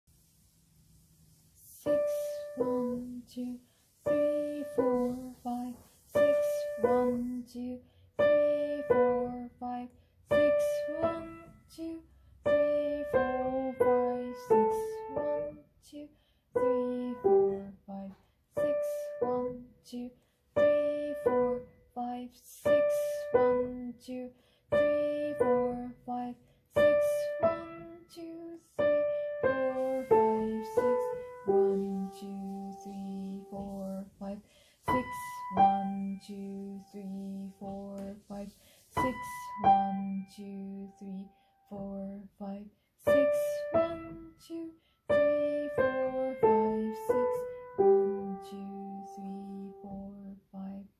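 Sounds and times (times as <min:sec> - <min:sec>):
slow piano melody: 0:01.8 - 0:03.2, 0:06.1 - 0:07.4, 0:08.2 - 0:09.5, 0:10.3 - 0:11.6, 0:12.4 - 0:15.6, 0:16.6 - 0:17.8, 0:22.7 - 0:23.9, 0:26.8 - 0:28.0, 0:28.7 - 0:33.9, 0:34.9 - 0:37.2, 0:39.0 - 0:41.2, 0:43.1 - 0:44.4, 0:45.1 - 0:50.0.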